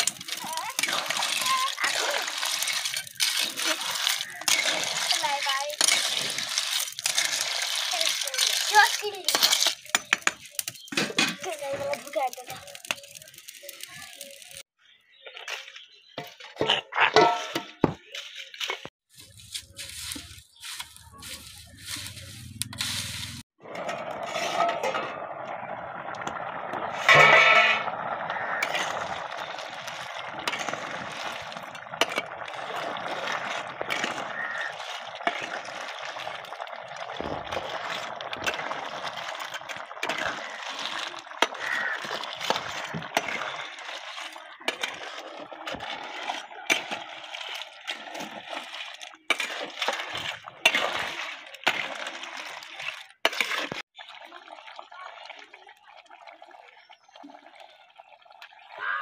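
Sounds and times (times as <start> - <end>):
shells clattering against a pan: 2.4 - 12.1
simmering gravy hiss: 26.5 - 46.0.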